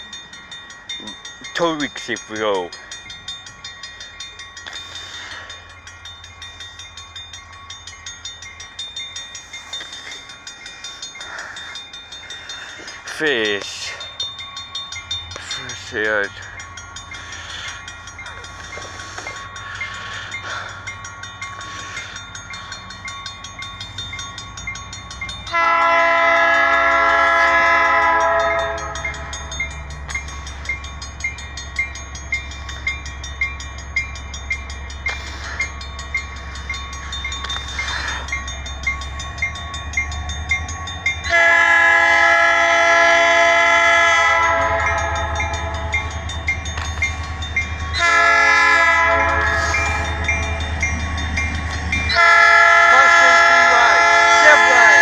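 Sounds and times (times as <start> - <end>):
crossing bell ringing: 0.0 - 55.0
low locomotive rumble: 0.0 - 55.0
locomotive air horn: 25.5 - 29.0, 41.3 - 45.8, 48.0 - 50.0, 52.1 - 55.0.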